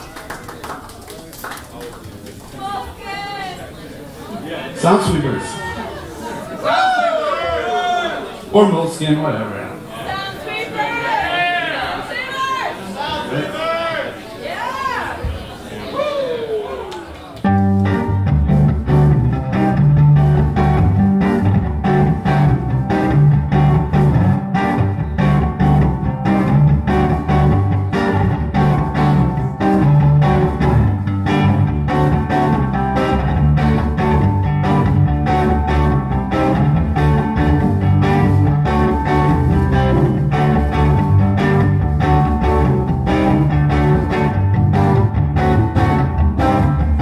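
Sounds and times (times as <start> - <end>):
live rock band playing: 17.4 - 47.0.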